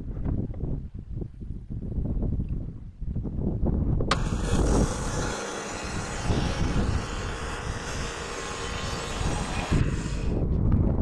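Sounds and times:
bandsaw mill sawing log: 4.1 - 10.4.

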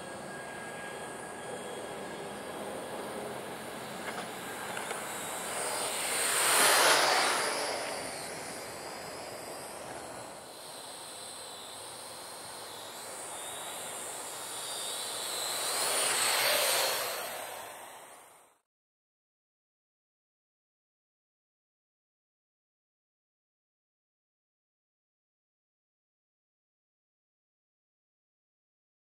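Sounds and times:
drone propellers buzzing: 0.0 - 18.6.

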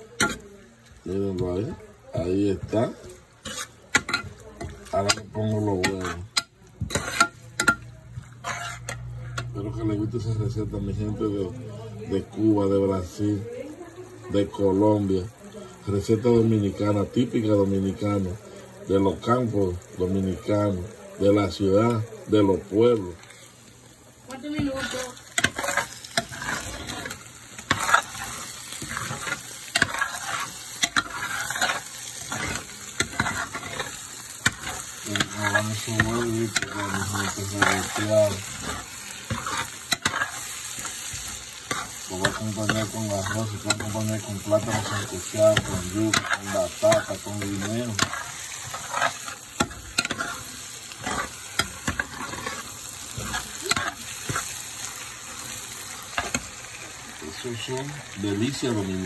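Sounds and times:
metal spoon scraping a pan: 0.0 - 10.6, 24.3 - 59.0
eggs sizzling in a frying pan: 0.0 - 59.0.

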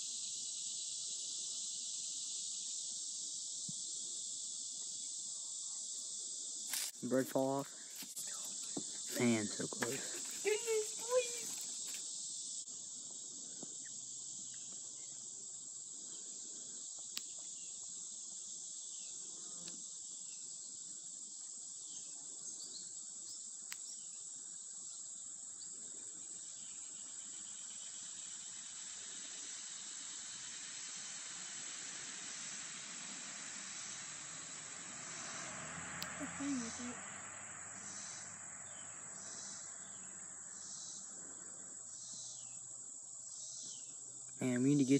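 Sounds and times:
insects chorus: 0.0 - 44.9.

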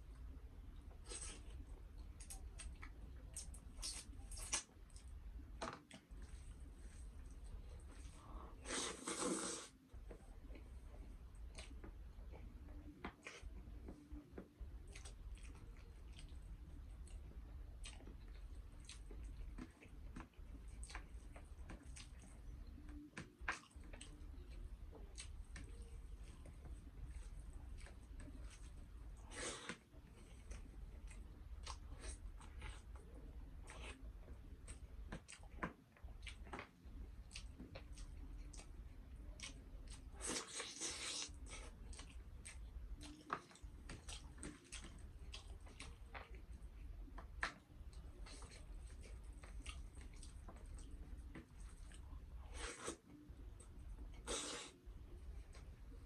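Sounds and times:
faint low hum: 0.0 - 56.0
person chewing food: 0.1 - 56.0.

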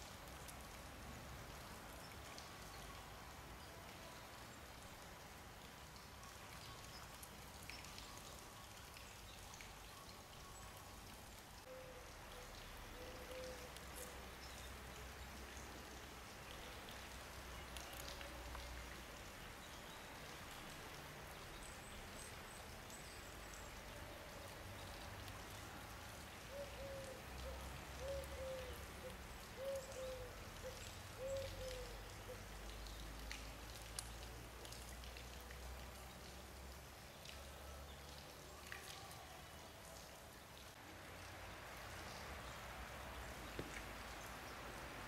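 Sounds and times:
light ticks: 32.6 - 36.4.

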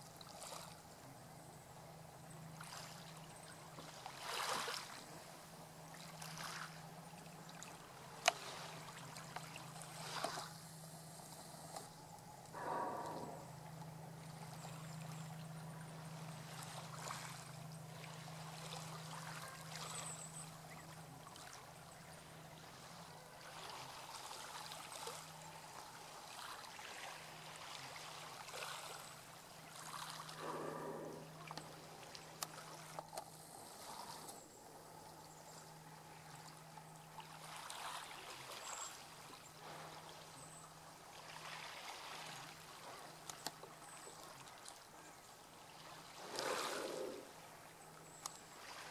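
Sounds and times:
water lapping and trickling: 0.0 - 48.9
steady low hum: 4.9 - 41.2
water rush: 12.5 - 20.2, 21.2 - 33.0, 45.7 - 48.9.

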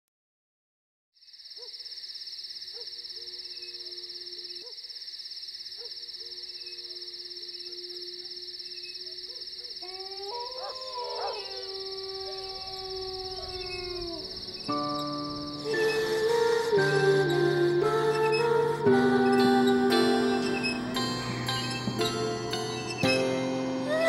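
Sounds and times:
insects chirring: 1.2 - 24.0
higher held tones: 11.4 - 24.0.

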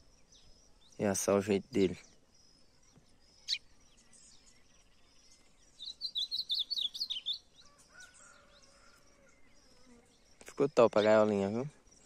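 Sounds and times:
high twittering chirps: 0.0 - 8.8
songbird call: 0.0 - 12.0.

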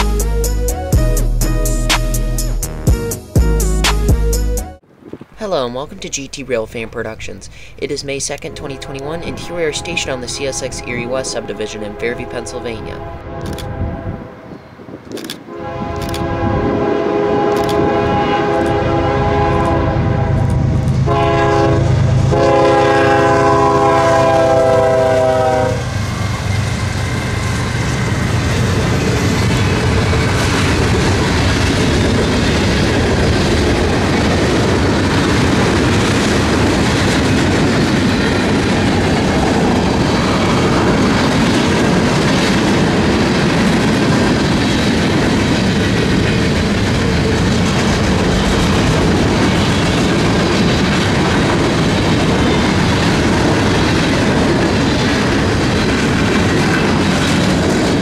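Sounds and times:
train rumbling past: 4.5 - 58.0
locomotive air horn: 8.5 - 14.5, 15.5 - 25.9
wheels clacking on rails: 17.4 - 58.0.

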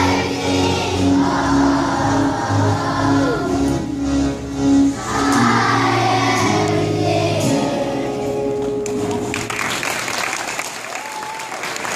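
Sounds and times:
children's choir singing: 0.0 - 8.8
musical accompaniment: 0.0 - 10.1
clapping and cheering: 8.7 - 11.9.

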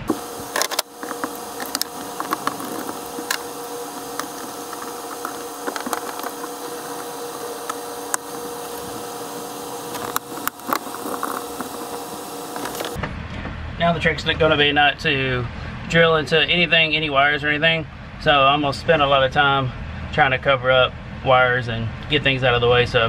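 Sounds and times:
faint hum: 0.0 - 13.0
steady hiss: 0.0 - 13.0.

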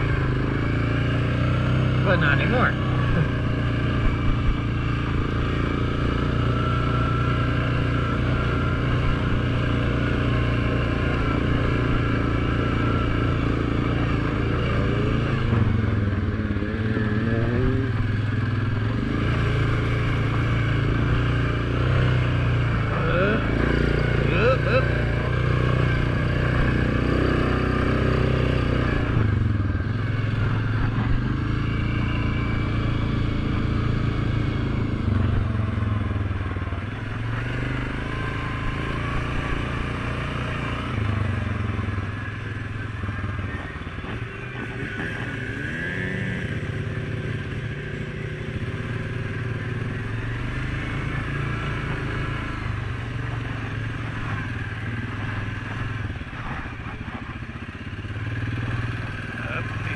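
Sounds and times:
quad engine revving: 0.0 - 59.9.

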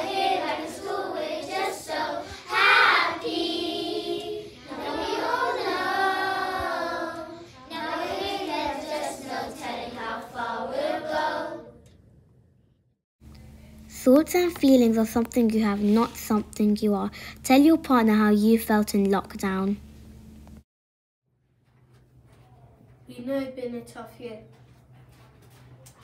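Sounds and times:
children singing together: 0.0 - 11.8.

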